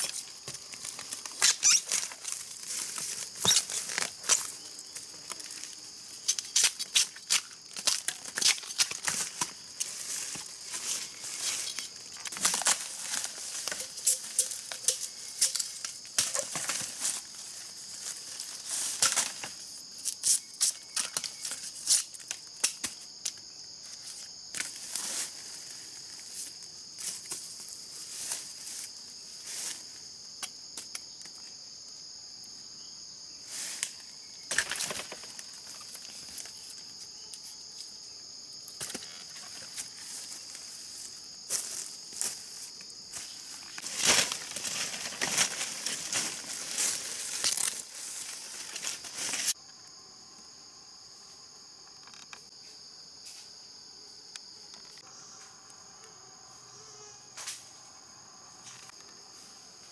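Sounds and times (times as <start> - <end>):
insects droning: 0.0 - 59.9
plant stalks snapping and tearing: 6.3 - 9.6, 43.7 - 47.8.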